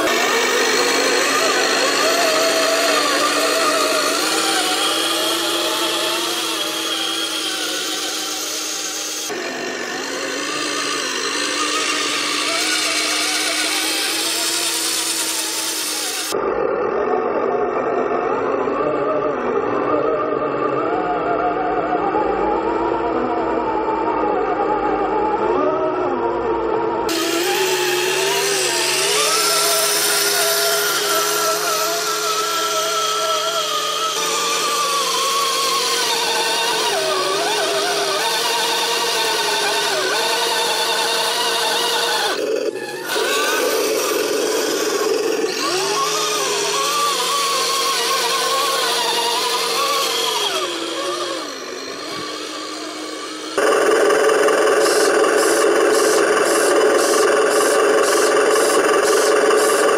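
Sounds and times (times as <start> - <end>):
electric toy truck motor whining: 0.0 - 59.9.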